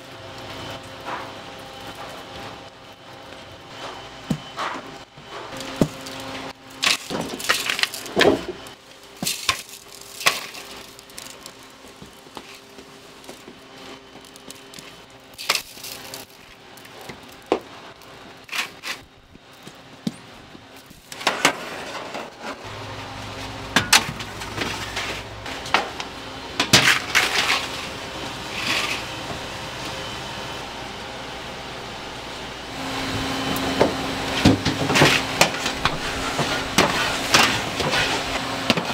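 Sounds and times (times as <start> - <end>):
steady low hum: 0.0 - 38.9
metal trays and utensils clinking: 6.8 - 13.5.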